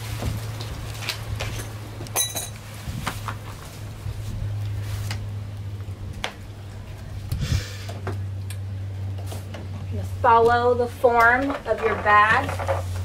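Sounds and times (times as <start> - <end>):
steady low hum: 0.0 - 13.0
metal clink: 1.6 - 2.6.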